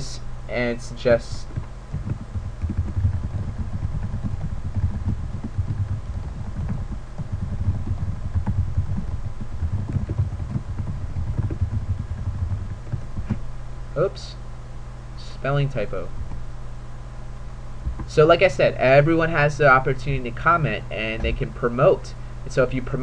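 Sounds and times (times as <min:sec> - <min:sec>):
typing on a keyboard: 0:01.5 - 0:13.4.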